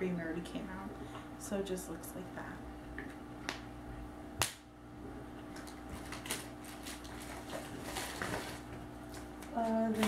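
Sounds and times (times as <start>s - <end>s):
low room hum: 0.0s - 10.0s.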